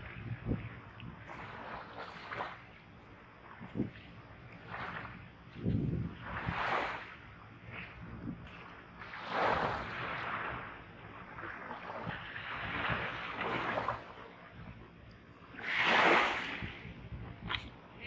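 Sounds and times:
waves washing on sandy shore: 0.0s - 14.4s, 15.5s - 17.7s.

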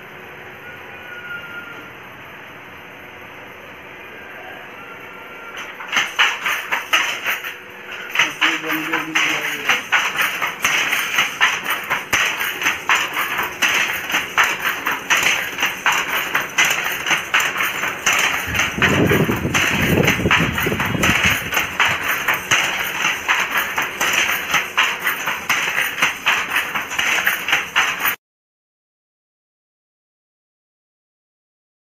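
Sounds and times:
wooden handloom clacking: 5.5s - 28.2s.

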